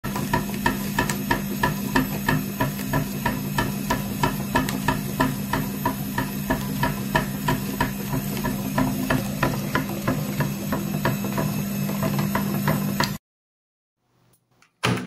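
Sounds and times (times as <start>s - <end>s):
electric grinder motor humming: 0.1s - 13.2s.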